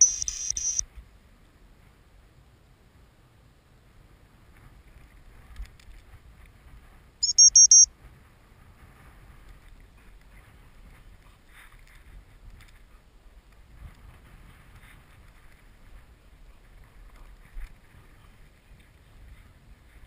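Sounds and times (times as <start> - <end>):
shrill whistle pips: 0.0 - 0.8, 7.2 - 7.9
wind rumble on microphone: 0.0 - 7.2, 7.9 - 20.0.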